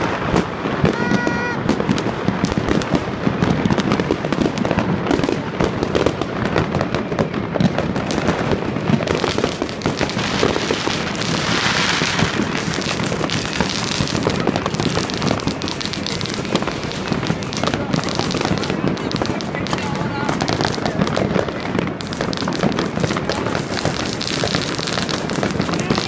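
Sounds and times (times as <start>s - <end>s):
fireworks crackling and banging: 0.0s - 26.0s
fireworks hiss: 7.9s - 26.0s.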